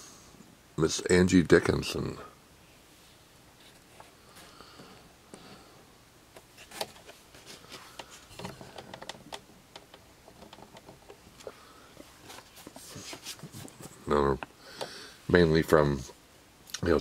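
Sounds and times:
photographs being handled: 6.4 - 9.4, 10.3 - 14.1.

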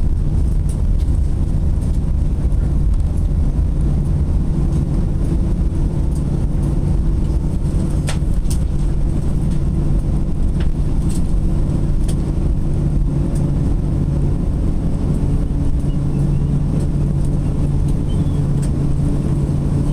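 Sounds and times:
constant low hum: 0.0 - 19.9
jet engines and wheels rumbling: 0.0 - 19.9.

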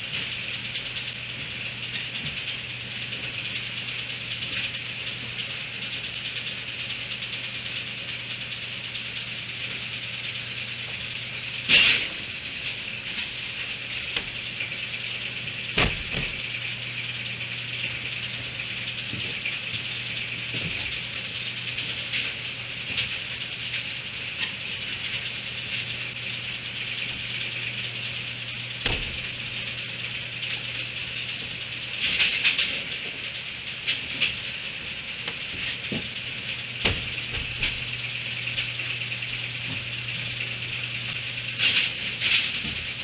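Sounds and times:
low electrical hum: 0.0 - 43.0.

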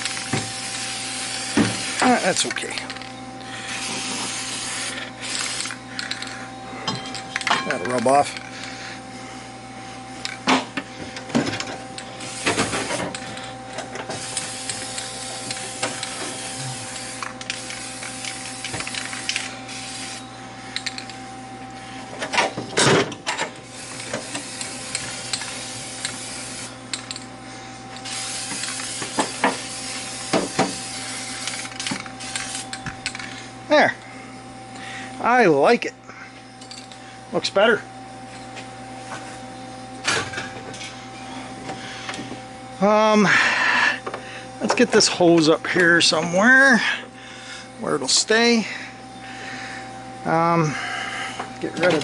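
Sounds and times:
steady background hum: 0.0 - 52.0
spray-paint can hissing: 14.2 - 20.2, 23.8 - 26.7, 28.0 - 32.6.

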